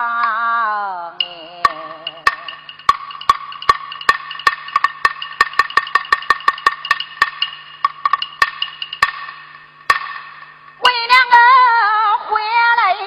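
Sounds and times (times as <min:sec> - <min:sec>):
woodblock-like percussion strikes: 0:01.2 - 0:11.3.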